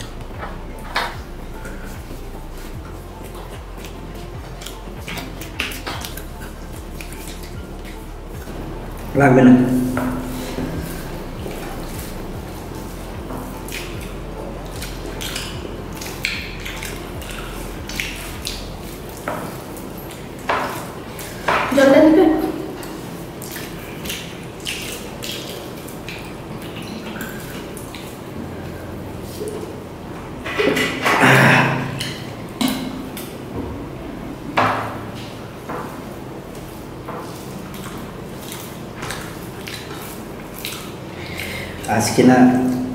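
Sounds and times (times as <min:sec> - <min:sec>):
mouths chewing and smacking: 0:00.0 - 0:29.8, 0:36.1 - 0:42.2
steady low hum: 0:00.0 - 0:30.5
fingers mixing rice and curry: 0:00.1 - 0:09.1, 0:10.1 - 0:21.7, 0:35.5 - 0:42.0.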